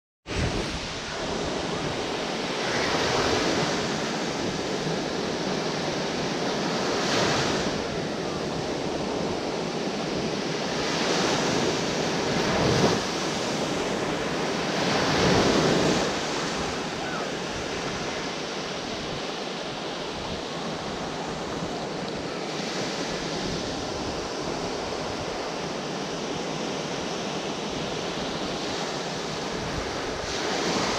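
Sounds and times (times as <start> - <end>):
small waves breaking on beach: 0.3 - 30.9.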